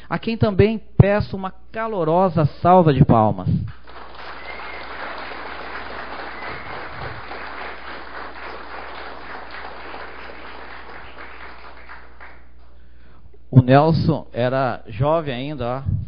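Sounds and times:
audience applauding: 3.8 - 12.7.

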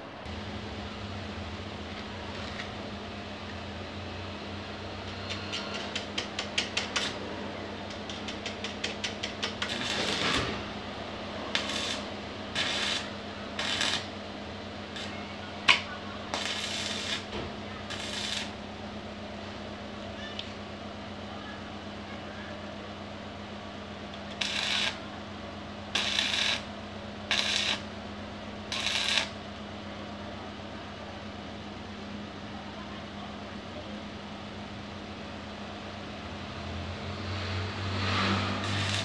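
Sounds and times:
arc welding crackling: 5.0 - 7.2, 7.8 - 18.7, 24.1 - 25.1, 25.9 - 28.0, 28.6 - 29.4, 37.9 - 39.0.

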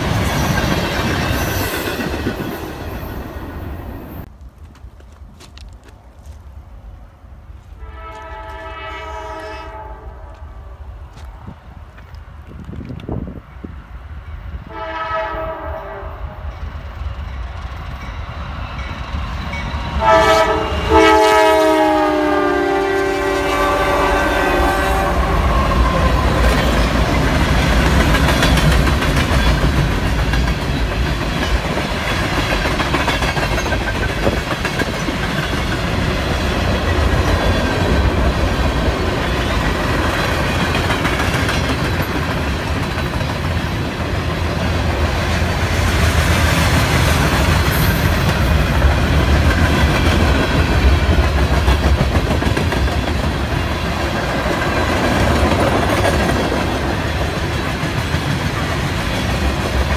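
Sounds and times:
clickety-clack of wheels on rail joints: 0.0 - 6.5, 10.3 - 14.8, 16.4 - 21.0, 25.1 - 59.9
locomotive horn blasts: 7.8 - 10.4, 14.7 - 16.4, 20.0 - 26.4.

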